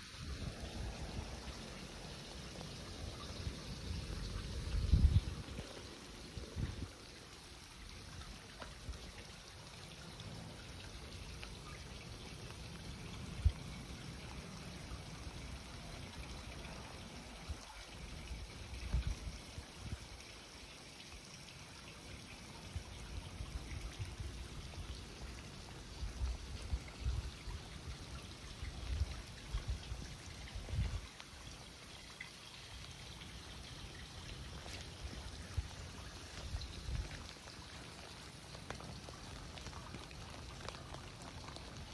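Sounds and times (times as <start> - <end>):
water trickling over wet asphalt: 0.0 - 41.9.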